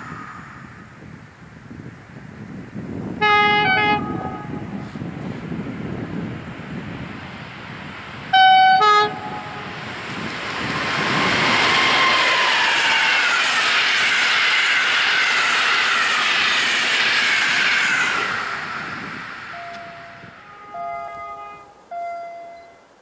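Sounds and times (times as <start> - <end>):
train wheels rushing on rails: 0.0 - 1.2, 2.4 - 22.6
two-tone locomotive horn: 3.2 - 4.9, 8.3 - 9.8, 19.5 - 22.8
train motor whines: 10.8 - 21.6.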